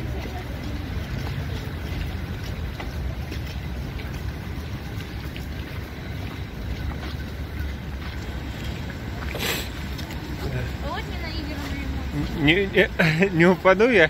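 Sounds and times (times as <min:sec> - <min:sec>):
busy street noise: 0:00.0 - 0:14.0.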